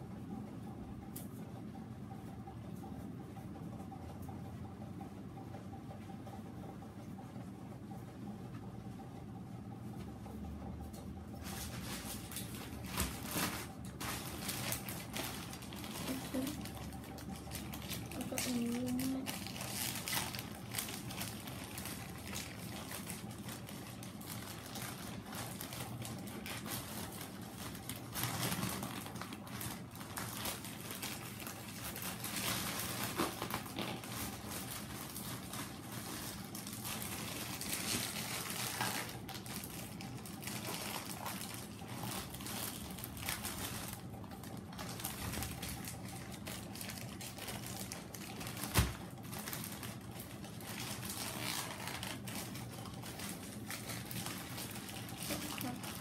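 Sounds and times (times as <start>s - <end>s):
plastic mailer bag tearing and crinkling: 11.4s - 56.0s.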